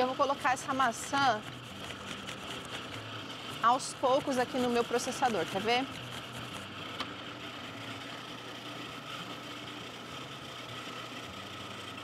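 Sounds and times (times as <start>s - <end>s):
food processor motor humming: 0.0s - 12.0s.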